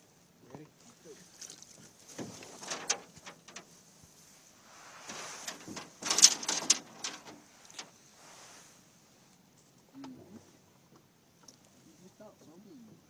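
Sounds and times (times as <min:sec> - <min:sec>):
soft scraping rush: 0:02.2 - 0:09.3.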